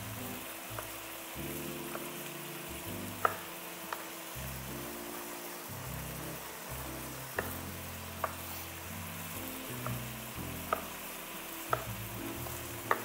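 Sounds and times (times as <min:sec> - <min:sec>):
meat sizzling in a wok: 0:00.0 - 0:13.0
wooden spoon clicking on pan: 0:01.9 - 0:02.2, 0:03.1 - 0:04.2, 0:07.3 - 0:07.6, 0:09.7 - 0:11.0, 0:11.7 - 0:13.0.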